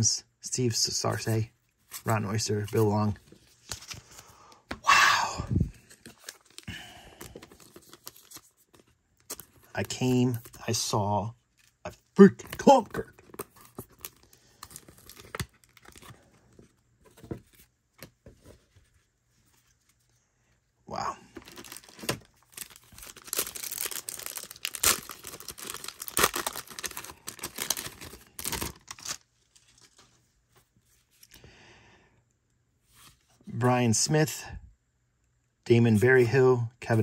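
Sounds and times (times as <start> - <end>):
card pack wrapper tearing: 6.0 - 10.8, 11.6 - 16.2, 21.4 - 29.2.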